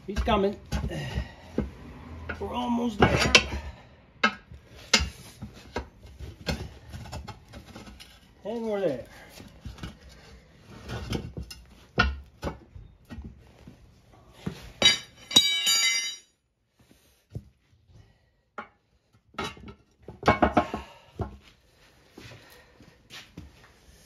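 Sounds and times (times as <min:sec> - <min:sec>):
metal tools knocking: 0:14.8 - 0:16.3
ringing metallic clank: 0:14.8 - 0:16.3.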